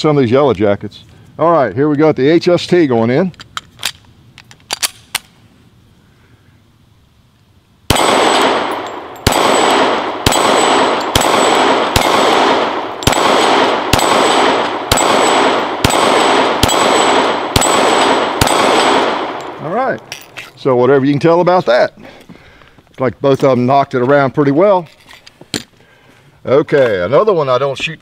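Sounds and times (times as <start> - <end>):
pistol shots: 7.9 - 20.1.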